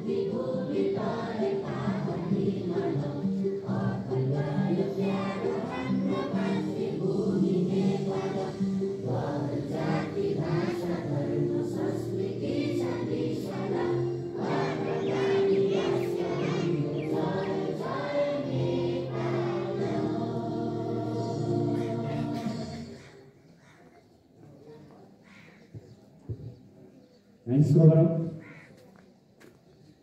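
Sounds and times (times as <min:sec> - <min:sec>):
choir singing slow song: 0:00.0 - 0:23.2
sustained musical tones: 0:01.2 - 0:23.0.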